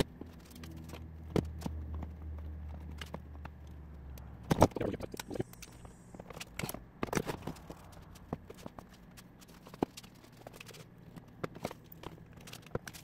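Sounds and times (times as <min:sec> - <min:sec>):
vinyl being handled: 0:04.4 - 0:13.0.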